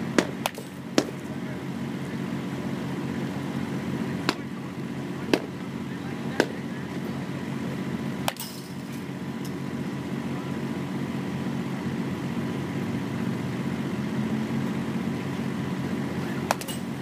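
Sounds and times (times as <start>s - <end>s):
low engine drone: 0.0s - 17.0s
bat cracking a ball: 0.1s - 1.2s, 5.3s - 5.6s, 16.5s - 17.0s.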